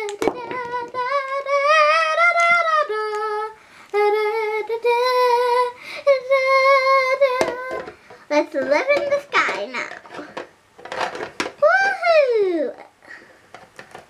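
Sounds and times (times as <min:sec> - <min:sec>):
child singing wordless tune: 0:00.0 - 0:10.0.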